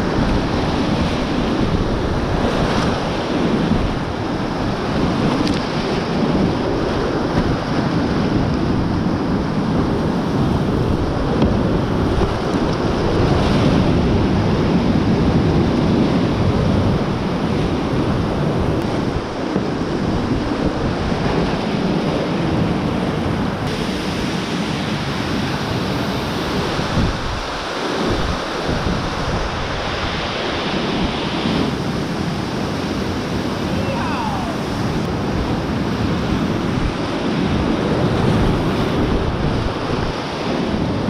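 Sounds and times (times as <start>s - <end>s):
whitewater rapids rushing: 23.1s - 40.9s.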